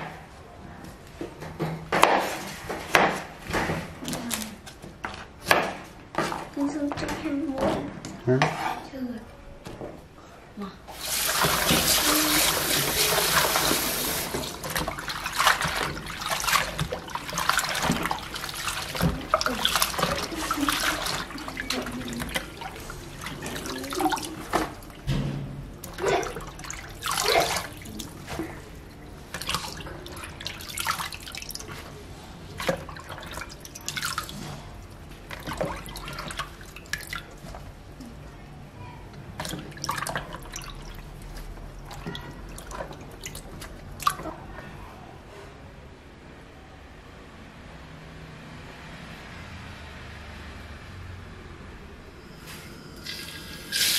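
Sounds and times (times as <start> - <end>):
tap water pouring into basin: 10.9 - 25.2, 53.0 - 53.9
hands swishing leaves in water: 11.0 - 24.9, 25.8 - 34.7.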